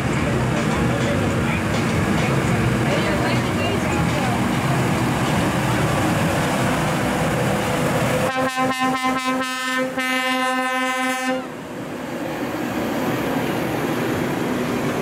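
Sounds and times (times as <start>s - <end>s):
tractor engine: 0.0s - 9.0s
air horn toots and blast: 8.3s - 11.5s.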